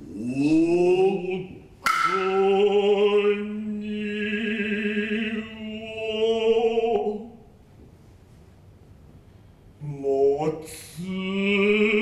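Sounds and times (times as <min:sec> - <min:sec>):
person's long held vocal call: 0:00.0 - 0:07.4.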